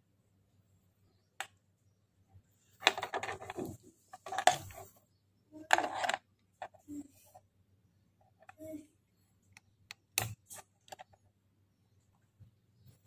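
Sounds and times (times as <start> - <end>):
faint low hum: 0.0 - 13.0
plastic unit clicking and rattling: 2.8 - 4.8.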